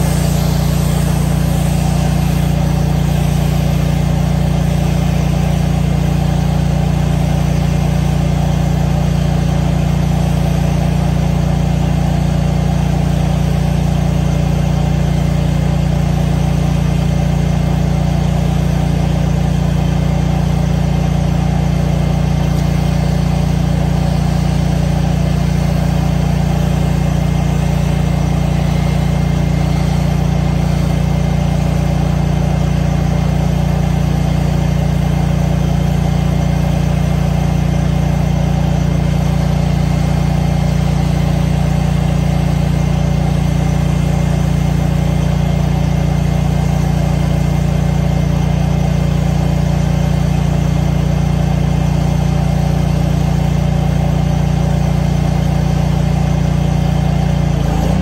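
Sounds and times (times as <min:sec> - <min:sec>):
water spray hissing on concrete: 0:00.0 - 0:12.2, 0:22.3 - 0:34.5
pressure washer engine running: 0:00.0 - 0:58.0.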